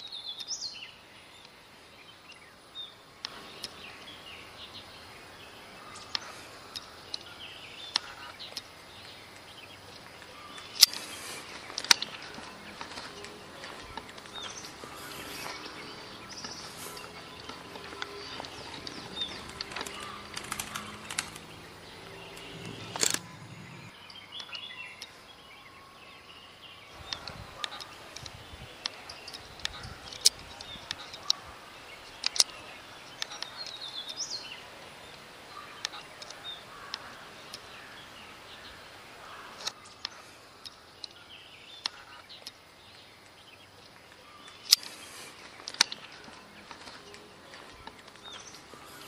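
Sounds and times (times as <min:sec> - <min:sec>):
bird chirps: 0:00.0 - 0:49.0
sharp clicks: 0:10.2 - 0:25.1, 0:32.1 - 0:34.2.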